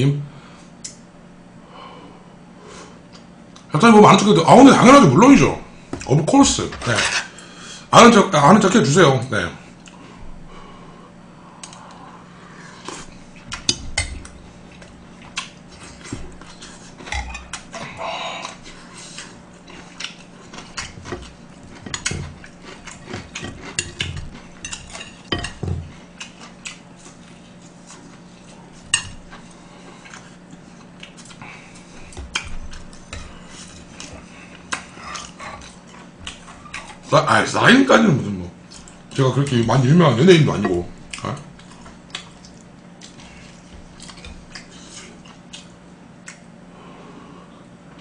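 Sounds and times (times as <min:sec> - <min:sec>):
person eating: 0:09.7 - 0:37.1, 0:38.5 - 0:48.0.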